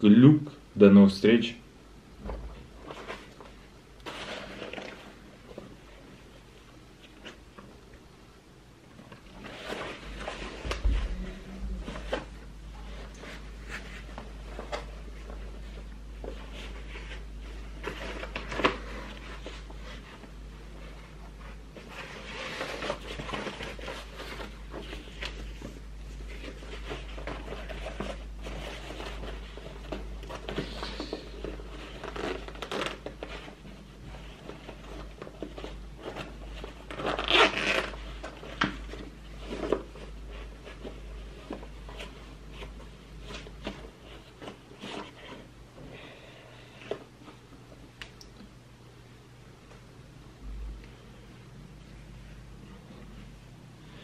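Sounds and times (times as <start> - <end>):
fabric rustling: 2.2 - 7.8, 8.8 - 45.8
zipper rasping: 36.9 - 38.0.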